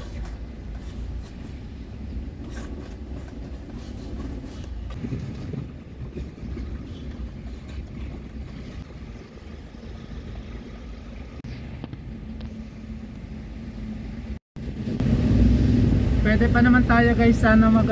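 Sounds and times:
van engine and road rumble: 0:00.0 - 0:17.9.

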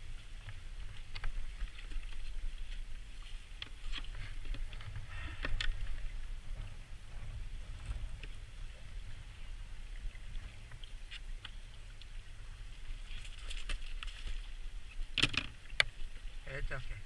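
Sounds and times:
wind rumble on microphone: 0:00.0 - 0:17.0
light clicks and rustles: 0:00.1 - 0:08.9, 0:12.8 - 0:16.3.

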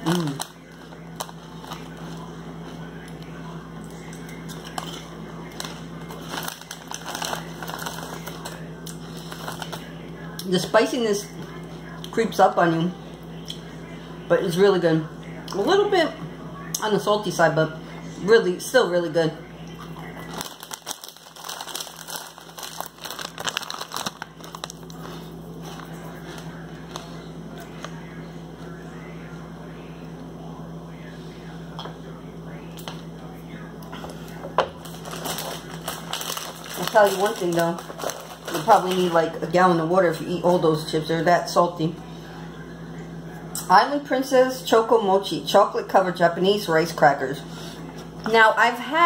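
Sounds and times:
chips being chewed: 0:00.0 - 0:09.9, 0:19.8 - 0:27.9, 0:34.8 - 0:39.2
plastic chip bag crinkling: 0:00.0 - 0:10.0, 0:19.9 - 0:27.9, 0:34.8 - 0:40.4
steady low hum: 0:00.0 - 0:49.0.

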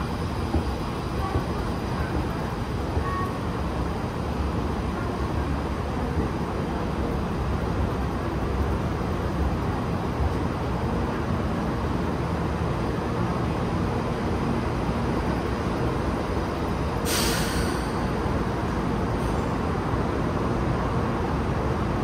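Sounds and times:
train low rumble: 0:00.0 - 0:22.0
sharp hiss of air: 0:17.0 - 0:18.1.

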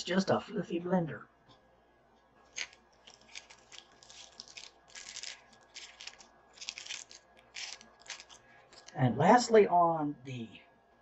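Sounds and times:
rustling of packaging: 0:02.5 - 0:09.0.

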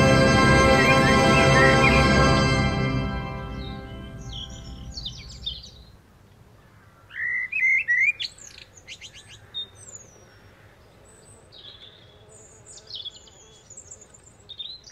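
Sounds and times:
birds chirping: 0:00.0 - 0:06.0.

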